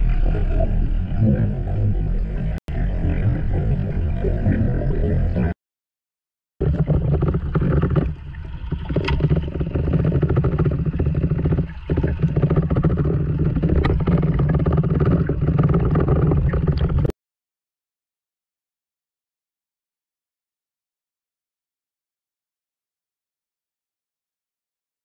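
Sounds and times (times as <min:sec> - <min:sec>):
underwater rush of water: 0:06.6 - 0:17.1.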